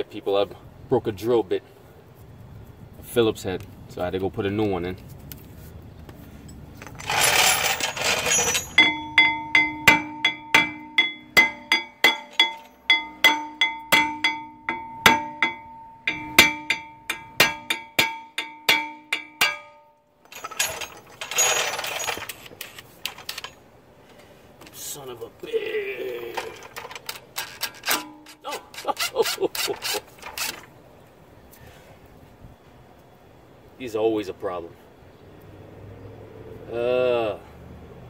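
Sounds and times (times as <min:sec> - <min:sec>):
hammer striking metal tool: 0:07.9 - 0:22.2.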